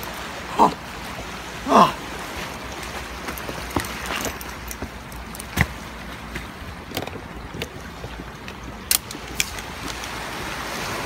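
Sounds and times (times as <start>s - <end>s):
rough sea waves: 0.0s - 11.0s
wind: 0.0s - 11.0s
short falling vocal sound: 1.6s - 2.0s.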